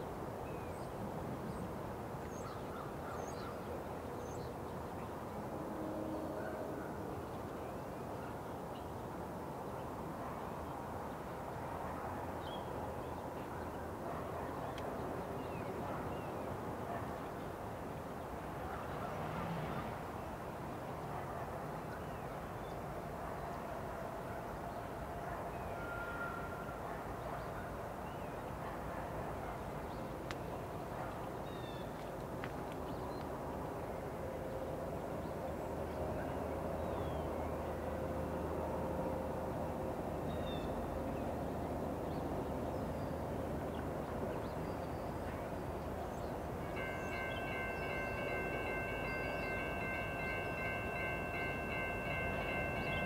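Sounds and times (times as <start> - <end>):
distant diesel locomotives: 11.6 - 53.0
road traffic rumble: 18.2 - 21.1.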